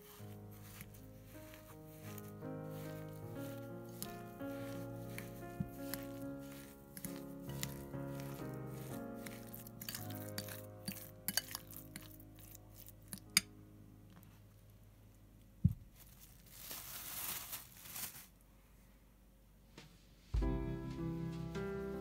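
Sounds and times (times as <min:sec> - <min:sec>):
soft rustling scrape: 0:00.0 - 0:10.6, 0:15.9 - 0:18.7.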